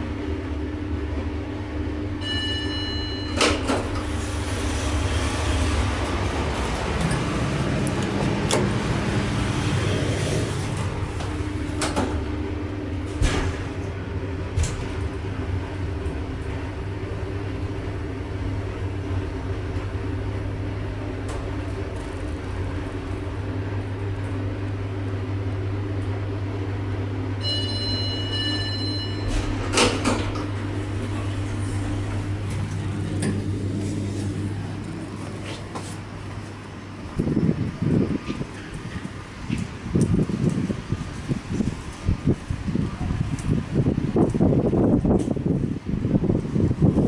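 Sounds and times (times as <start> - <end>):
hydraulic pump motor humming: 0.0 - 47.0
elevator doors clunking open: 1.0 - 47.0
elevator doors knocking: 2.2 - 24.5.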